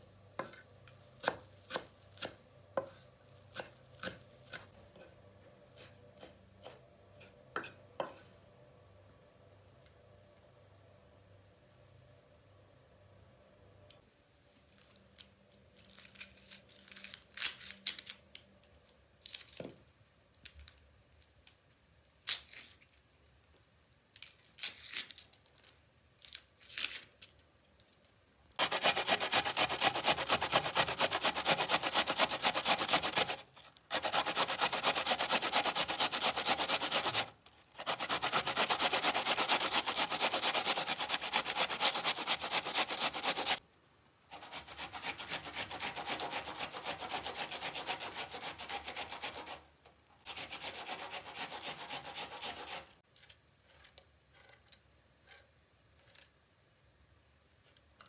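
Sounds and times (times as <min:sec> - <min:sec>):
onion rasping on metal grater: 0:28.6 - 0:43.6, 0:44.3 - 0:49.6, 0:50.2 - 0:53.0.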